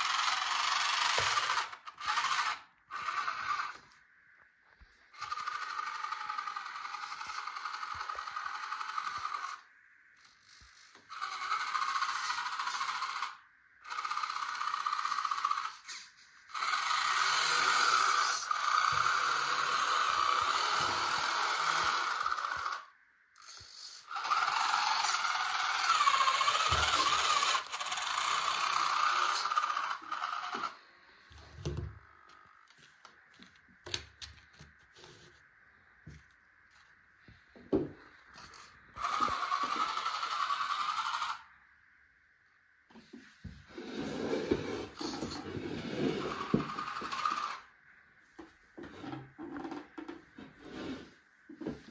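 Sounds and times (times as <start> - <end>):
electric motor and gearbox whining: 0.0 - 4.0, 4.7 - 35.4, 38.4 - 41.5, 44.4 - 47.8.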